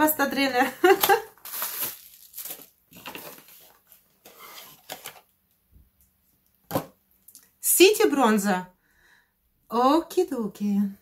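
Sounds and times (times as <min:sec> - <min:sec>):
cardboard packaging rustling: 0:00.9 - 0:05.4.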